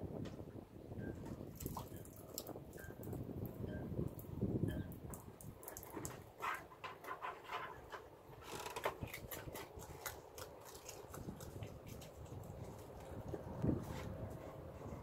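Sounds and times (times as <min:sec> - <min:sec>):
otter crunching crab shell: 0:08.5 - 0:13.2.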